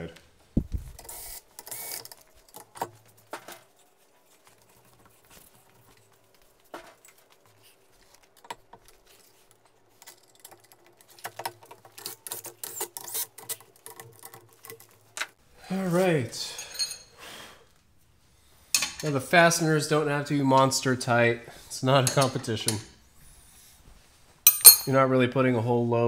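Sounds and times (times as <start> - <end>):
metal clicks and clinks: 24.5 - 24.9.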